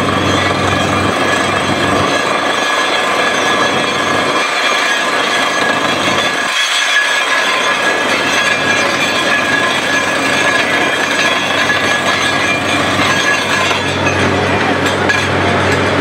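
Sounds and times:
drilling rig rushing noise: 0.0 - 16.0.

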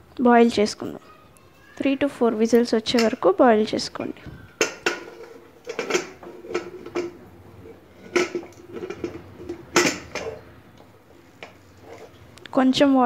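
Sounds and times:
metal pressure cooker clinks: 2.8 - 3.4, 4.6 - 7.2, 8.0 - 10.5.

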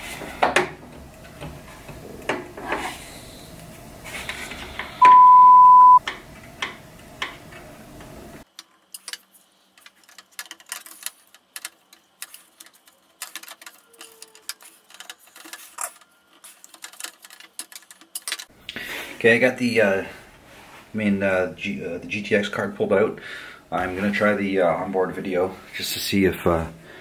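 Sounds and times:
censor beep: 5.0 - 6.0.

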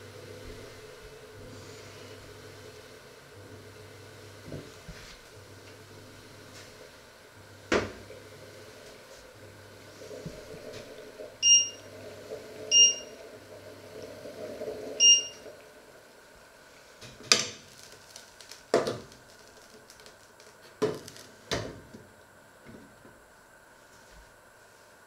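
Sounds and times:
electronic key beeps: 11.4 - 11.8, 12.7 - 13.1, 15.0 - 15.4.

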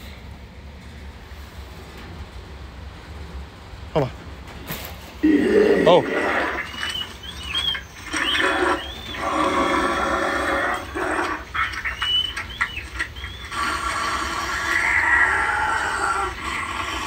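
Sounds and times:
monstrous creature vocals: 5.2 - 17.0.

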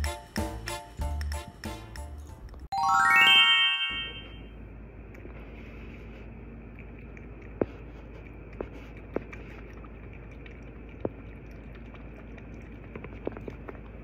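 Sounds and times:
kitten lapping water: 5.0 - 14.0.

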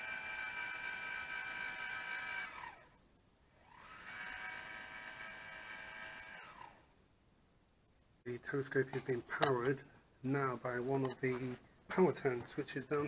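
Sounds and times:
motor whining: 0.0 - 6.9.

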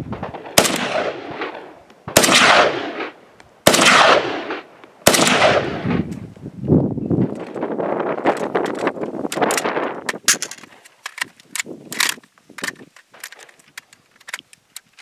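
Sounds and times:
rustling: 7.1 - 15.0
rifle metallic clicks and clacks: 7.3 - 7.6, 8.2 - 15.0.

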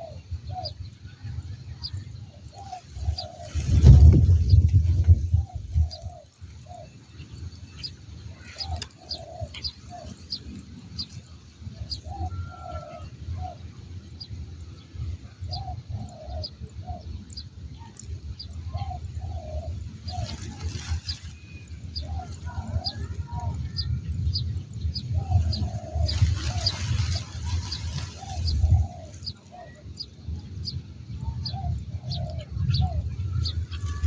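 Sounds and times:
small birds chirping: 0.0 - 34.0
dove cooing: 2.6 - 4.6, 8.3 - 10.6, 15.5 - 17.2, 18.7 - 21.1, 21.9 - 24.0, 25.1 - 29.8, 31.2 - 34.0.

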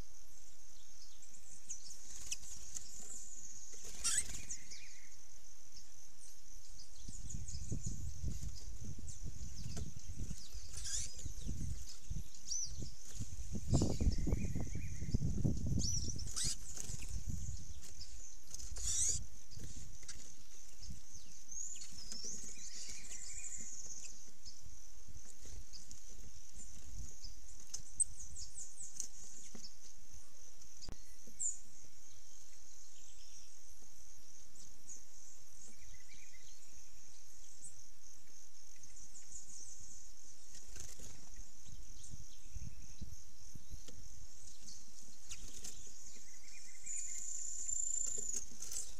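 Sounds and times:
high-pitched insect chorus: 0.0 - 48.9
bird chirps and calls: 1.0 - 5.2, 5.8 - 24.6, 38.7 - 48.9.

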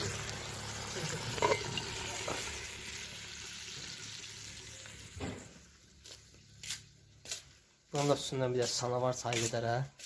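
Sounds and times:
food sizzling in a pan: 0.0 - 6.5.

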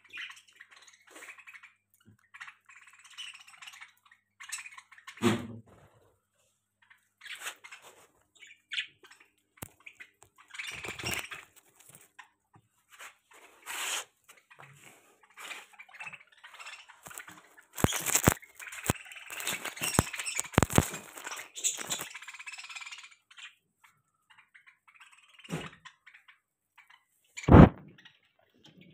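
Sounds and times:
budgerigars chirping: 0.0 - 5.4, 6.8 - 12.4, 13.3 - 28.9
wings flapping: 17.0 - 22.3, 27.5 - 27.9.

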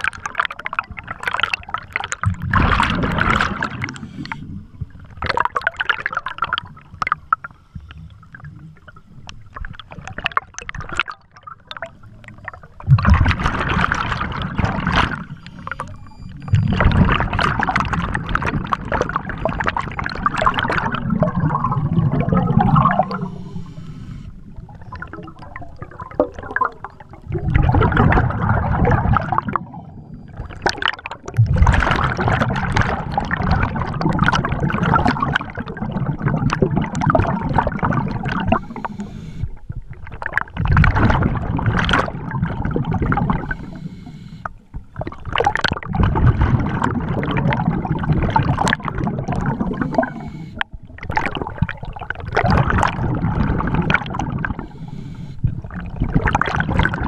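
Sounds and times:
exhaled bubbles rushing: 0.0 - 7.3, 8.2 - 44.0, 44.9 - 57.0
diver breathing through regulator: 3.7 - 4.8, 22.8 - 24.6, 38.3 - 39.6, 43.2 - 44.8, 49.5 - 50.8, 54.4 - 55.8.

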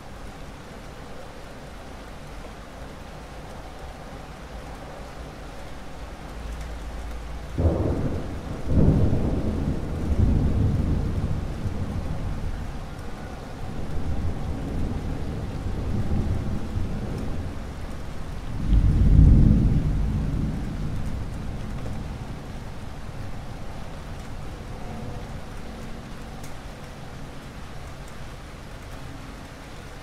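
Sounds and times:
steady rain: 0.0 - 30.0
thunder clap: 7.6 - 12.4
thunder rumbling: 7.6 - 27.0.

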